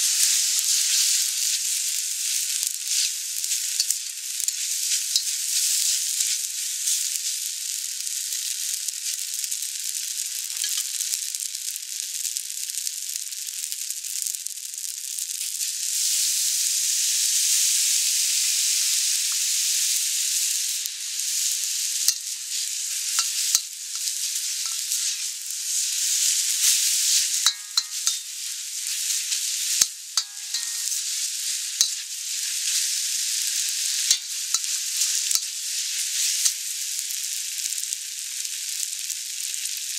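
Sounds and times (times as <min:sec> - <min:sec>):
noodles sizzling in wok: 0:00.0 - 0:39.9
utensil clicking against wok: 0:03.8 - 0:05.9, 0:22.1 - 0:22.3, 0:23.1 - 0:25.3, 0:26.1 - 0:28.3, 0:28.9 - 0:31.2, 0:31.8 - 0:35.6.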